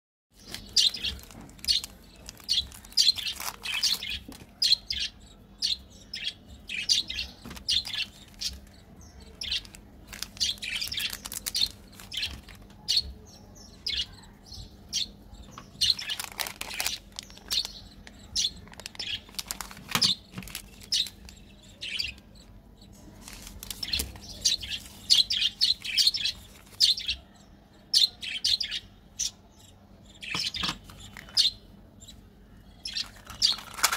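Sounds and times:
plastic candy wrappers crinkling: 0:00.4 - 0:04.6, 0:07.4 - 0:08.7, 0:09.4 - 0:12.8, 0:15.9 - 0:22.2, 0:23.0 - 0:27.1, 0:32.9 - 0:33.9.

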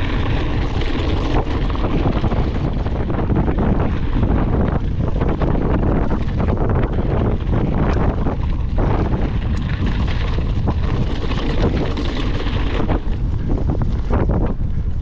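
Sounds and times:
bike knocks and rattles: 0:00.0 - 0:15.0
wind buffeting microphone: 0:00.0 - 0:15.0.

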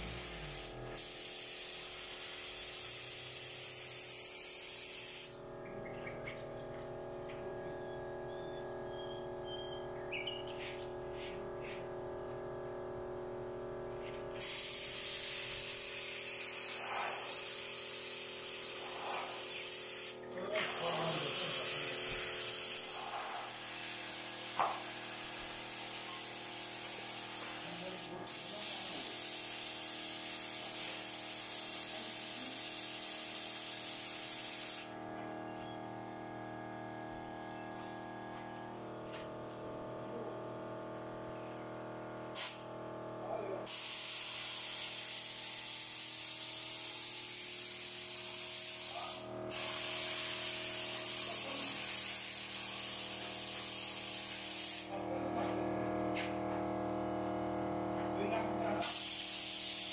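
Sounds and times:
spray gun hissing: 0:00.0 - 0:05.4, 0:10.5 - 0:11.8, 0:14.4 - 0:35.0, 0:43.7 - 0:55.0, 0:58.8 - 0:59.9
steady hum: 0:00.0 - 0:29.1.

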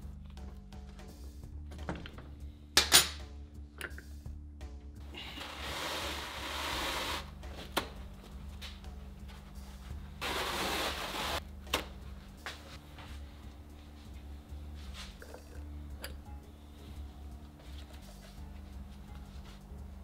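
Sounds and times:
paper towels ripping: 0:10.2 - 0:11.4.

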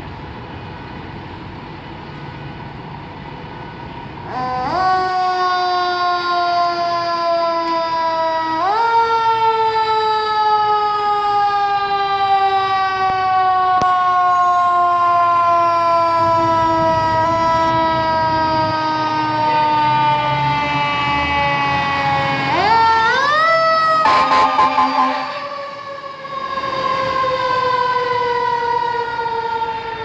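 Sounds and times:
fire engine siren wailing: 0:03.2 - 0:30.0
truck engine rumbling: 0:21.9 - 0:26.4.

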